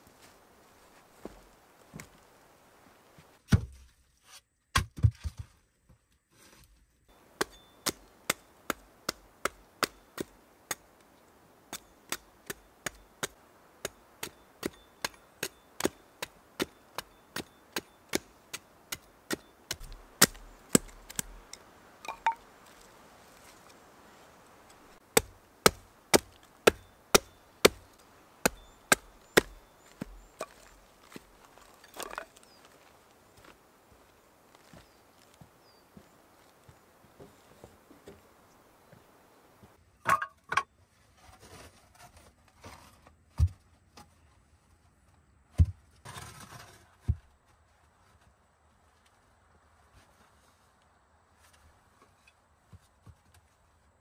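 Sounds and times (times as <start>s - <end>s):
hatchet chopping wood: 7.4s - 10.9s, 11.7s - 22.4s, 25.0s - 30.8s.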